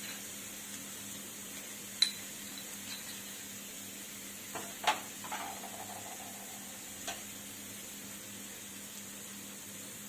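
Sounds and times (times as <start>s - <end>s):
masala frying hiss: 0.0s - 10.0s
spoon clinking against bowls: 2.0s - 3.4s.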